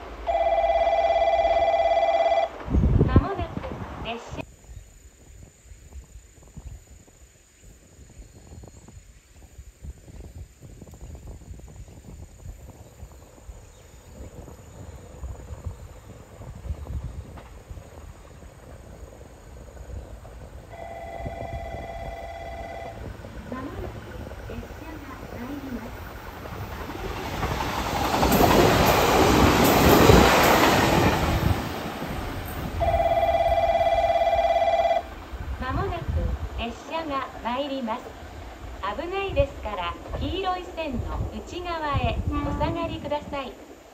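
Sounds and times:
electronic warning bell ringing: 0.3 - 2.5, 20.7 - 23.0, 32.8 - 35.1
train approaching rumble: 11.3 - 43.9.

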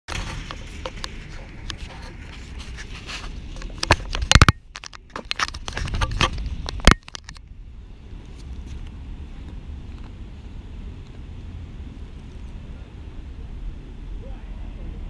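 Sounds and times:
camera handling noise: 0.1 - 7.4
low steady rumble: 0.1 - 15.0.

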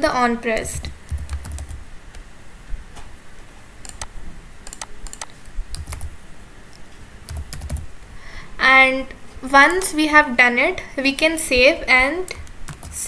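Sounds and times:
computer keyboard keystrokes: 1.1 - 1.8, 3.8 - 6.1, 7.3 - 7.9, 12.4 - 13.0.

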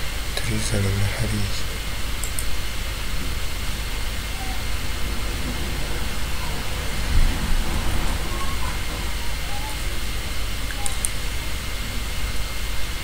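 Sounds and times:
steady hiss: 0.0 - 13.0
low rumble: 1.4 - 13.0
low bump: 1.7 - 11.9.

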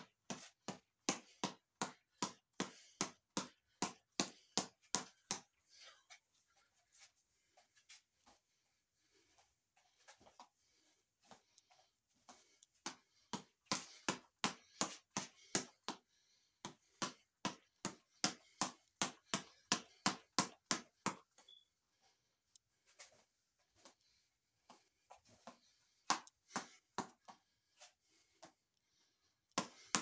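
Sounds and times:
fists slapping reflex ball: 0.0 - 5.9, 12.3 - 21.4, 25.4 - 27.4, 29.5 - 30.0.

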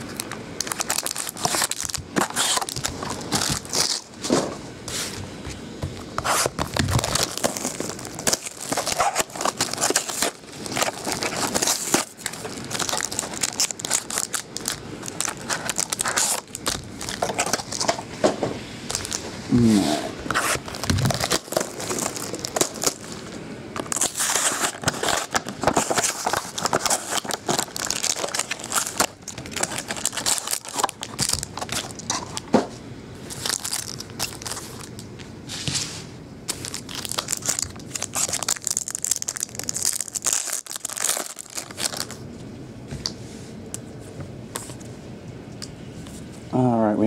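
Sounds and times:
plastic wrap tearing and crinkling: 0.0 - 4.4, 6.0 - 18.2, 18.8 - 19.3, 20.3 - 32.6, 33.2 - 35.1, 36.5 - 42.2.

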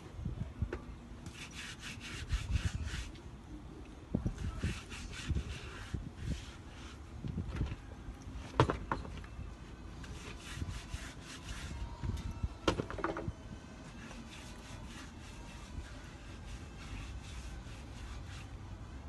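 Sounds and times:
rubbing and scraping: 1.3 - 3.2, 10.0 - 11.9, 12.9 - 18.6.

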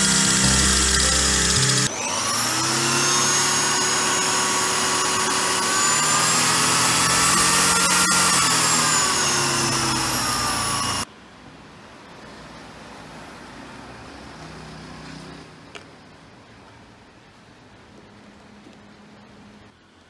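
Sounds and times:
electric drill motor whining: 0.0 - 11.1.

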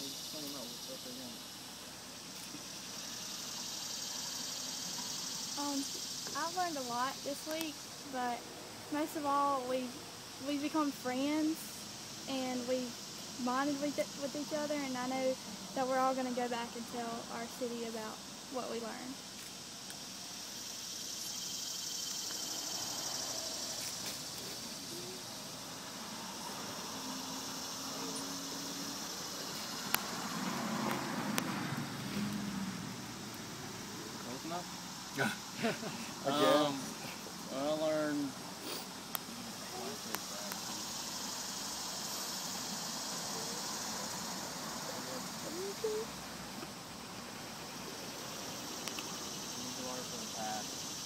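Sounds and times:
insects chorus drone: 0.0 - 51.0.

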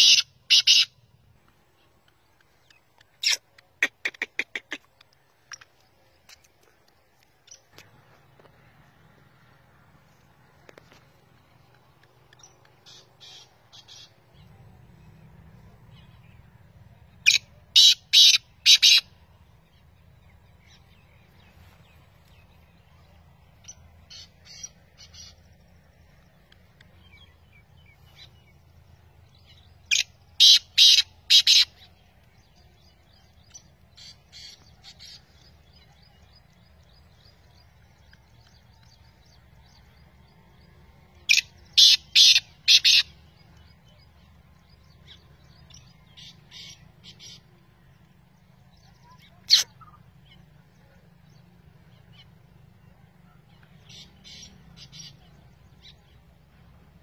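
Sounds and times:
francolin calling: 0.0 - 1.1, 12.2 - 14.7.

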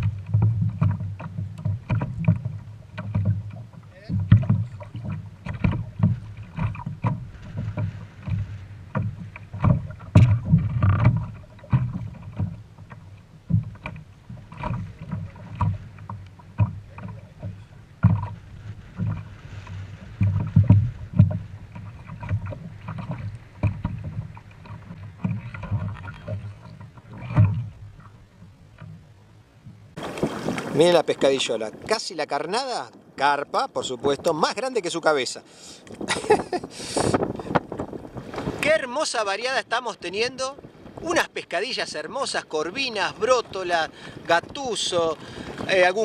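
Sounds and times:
knocks and thumps on plastic kayak: 0.0 - 32.0, 35.9 - 41.3, 41.9 - 46.0.

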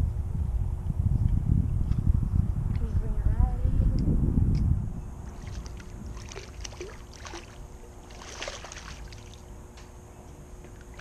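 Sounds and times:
fish thrashing and splashing: 5.3 - 9.5.

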